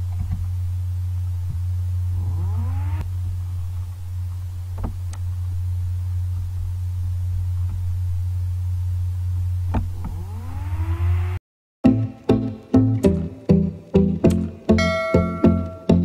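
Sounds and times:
low electrical hum: 0.0s - 11.4s
rising multi-pitch tone: 2.1s - 3.2s, 10.0s - 11.4s, 14.8s - 16.0s.

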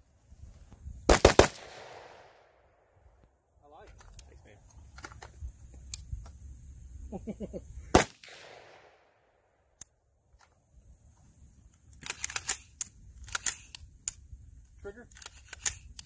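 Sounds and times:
metallic handling clicks: 11.7s - 14.3s, 15.1s - 16.0s.

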